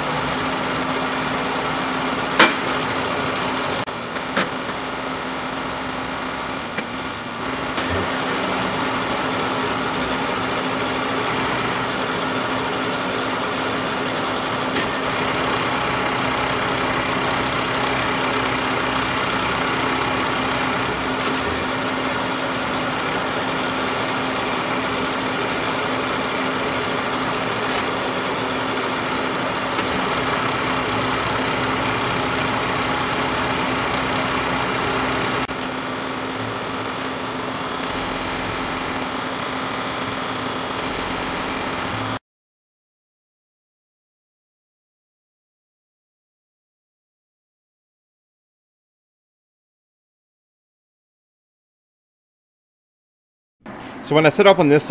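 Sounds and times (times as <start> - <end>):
milling machine motor hum: 0.0 - 42.2
end mill cutting aluminium hiss: 6.4 - 7.8.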